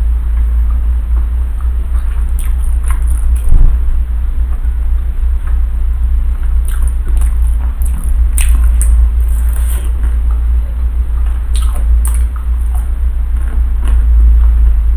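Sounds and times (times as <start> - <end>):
steady low hum: 0.0 - 14.9
close chewing: 1.5 - 3.8, 6.3 - 14.6
mouth clicks: 1.6 - 3.8, 6.4 - 10.4, 11.2 - 14.6.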